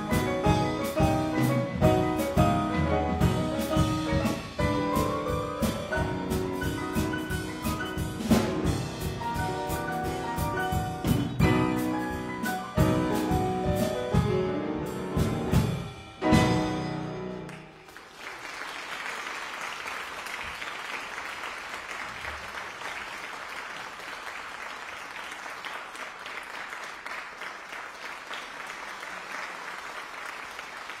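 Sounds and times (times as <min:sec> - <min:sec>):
piano and drum chord ringing: 0:00.0 - 0:17.8
audience applauding: 0:17.4 - 0:31.0.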